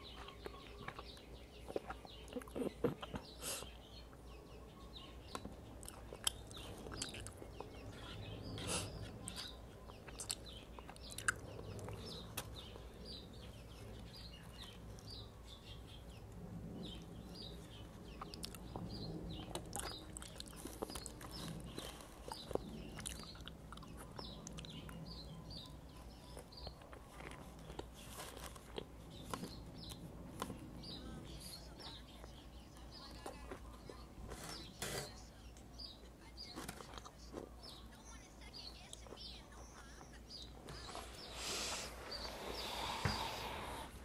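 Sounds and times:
small birds chirping: 0.0s - 44.0s
chewing and biting food: 0.3s - 3.2s, 5.3s - 7.8s, 9.2s - 12.6s, 18.2s - 25.0s, 26.3s - 30.6s.

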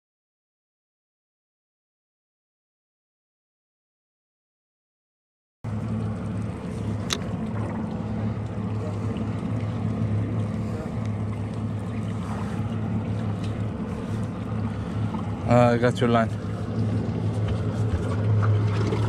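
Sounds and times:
wind: 5.6s - 19.0s
motorboat engine humming: 5.7s - 19.0s
water noise: 5.7s - 19.0s.

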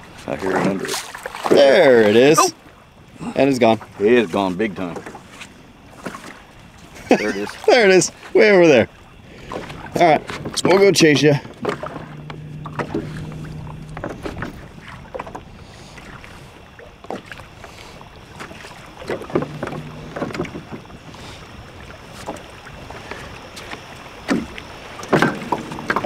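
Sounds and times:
water sloshing along hull: 0.0s - 26.0s
boat motor humming: 1.6s - 26.0s
knocks and splashes: 23.5s - 26.0s.

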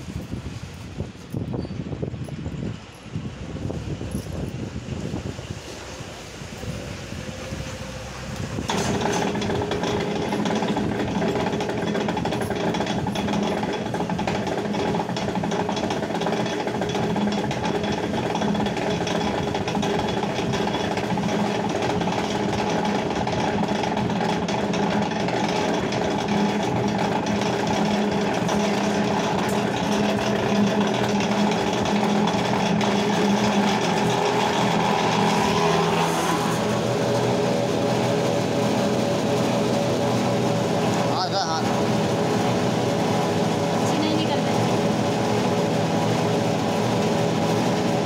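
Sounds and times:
machine motor humming with rattle: 0.0s - 48.0s.

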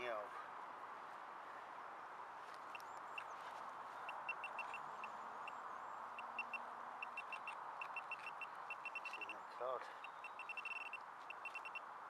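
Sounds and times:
metal detector beeps: 4.1s - 4.8s, 6.2s - 9.4s, 10.0s - 11.8s.

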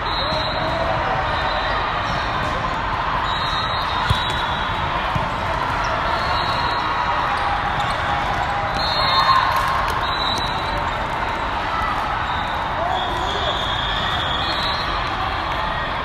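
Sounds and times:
volleyball being struck: 4.0s - 5.4s.

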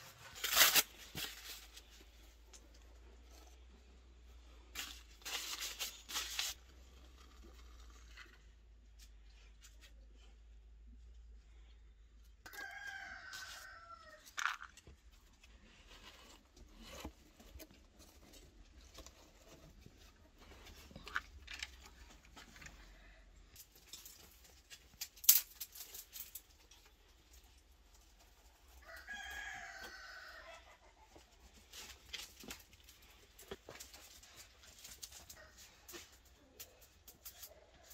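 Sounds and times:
rooster crowing: 12.5s - 14.3s, 28.8s - 30.7s.

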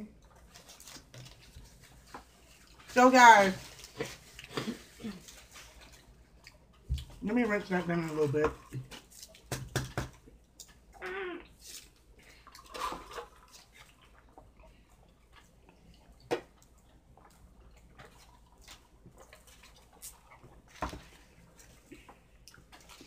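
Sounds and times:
paper wrappers rustling: 0.3s - 6.1s.

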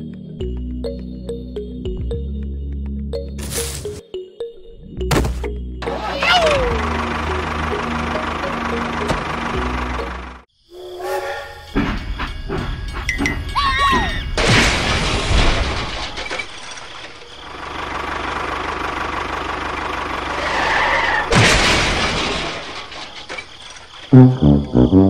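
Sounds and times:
loud crash: 14.4s - 16.7s, 21.1s - 24.2s.

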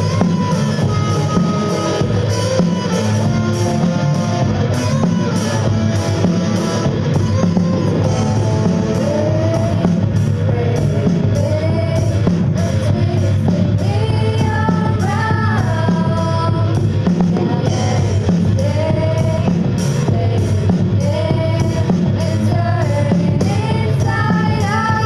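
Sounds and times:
drum kit: 0.0s - 25.0s
electric bass: 0.0s - 25.0s
electric guitar: 0.0s - 25.0s
female vocalists singing: 8.1s - 25.0s.

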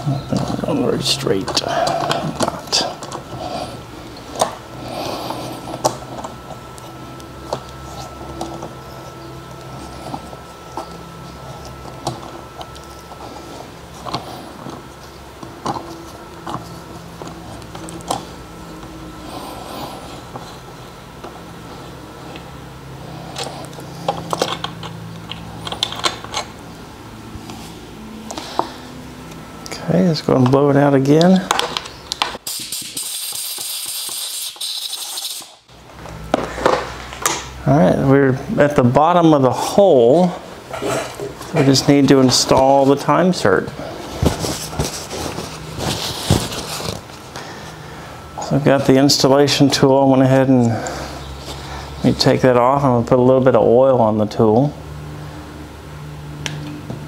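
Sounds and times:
low hum: 0.0s - 32.4s.

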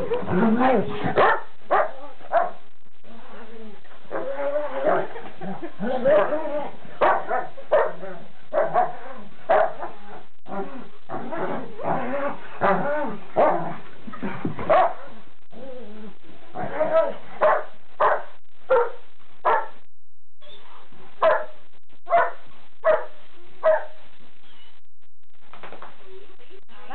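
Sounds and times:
dogs barking and yipping: 0.0s - 2.6s, 5.9s - 10.3s, 11.0s - 15.2s, 16.5s - 19.8s, 21.2s - 21.5s, 22.1s - 24.0s.

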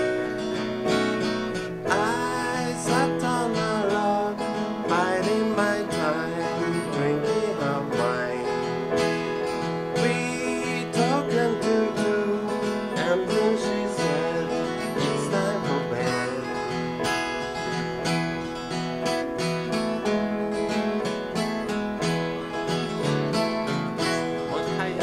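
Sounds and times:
acoustic guitar: 0.0s - 25.0s
man singing: 1.9s - 16.7s, 24.2s - 25.0s.

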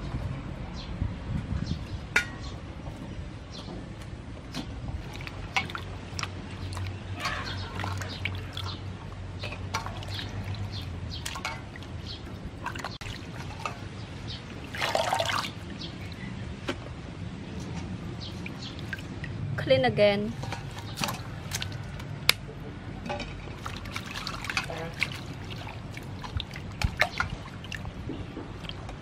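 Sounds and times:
water splashing: 3.6s - 16.2s, 17.5s - 19.5s, 20.3s - 22.3s, 23.0s - 29.0s.

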